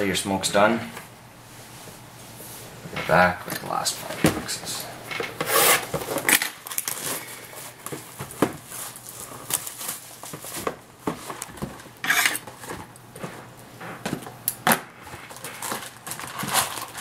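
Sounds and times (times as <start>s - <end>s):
cardboard scraping rustle: 5.4s - 6.2s, 6.9s - 13.4s
cardboard boxes tapping and knocking: 7.9s - 8.8s.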